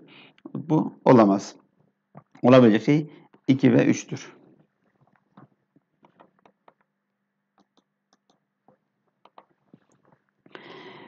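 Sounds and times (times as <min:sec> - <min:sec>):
faint small clicks: 0:07.6 - 0:10.2.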